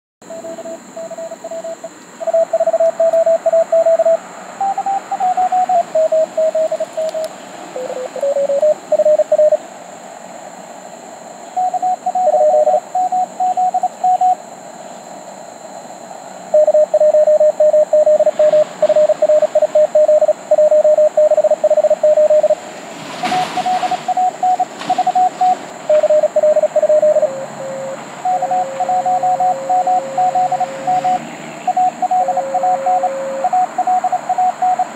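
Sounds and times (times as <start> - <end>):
morse code beeps: 0.2 - 9.6, 11.6 - 14.4, 16.5 - 22.6, 23.2 - 34.9
short burst of noise: 23.0 - 32.1.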